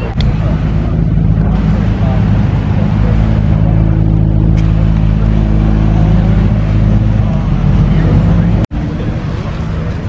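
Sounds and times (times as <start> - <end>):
car engine running: 0.0 - 10.0.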